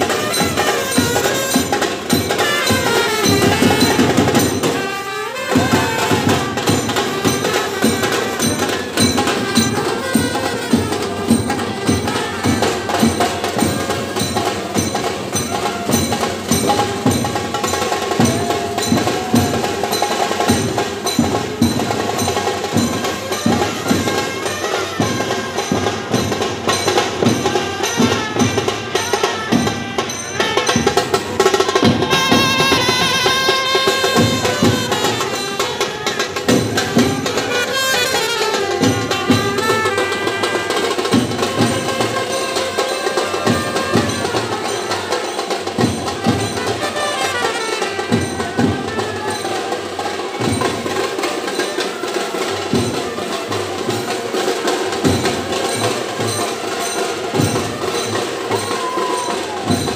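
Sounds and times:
saxophone: 0:00.0 - 0:14.4, 0:27.6 - 0:45.4
loud drumming: 0:00.0 - 0:59.9
trumpet: 0:00.0 - 0:59.9.

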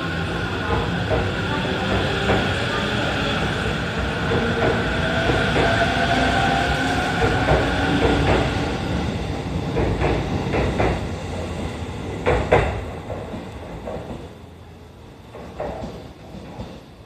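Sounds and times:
train wheels clacking over rail joints: 0:07.2 - 0:08.5, 0:09.7 - 0:11.0.

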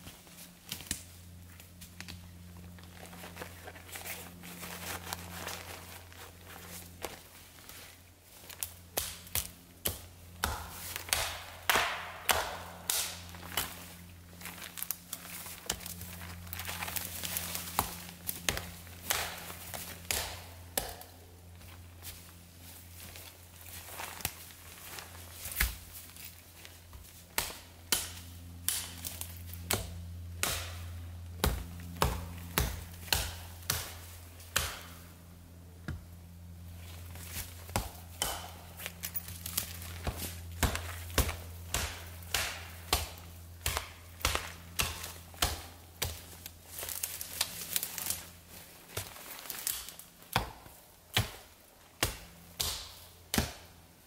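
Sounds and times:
hatchet chopping branches: 0:08.6 - 0:22.2, 0:27.0 - 0:35.1, 0:37.0 - 0:53.8.

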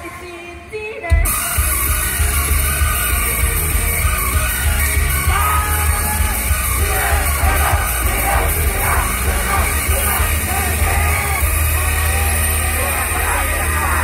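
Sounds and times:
pop song over loudspeakers: 0:00.0 - 0:14.0
voices singing and yelling: 0:05.0 - 0:14.0.

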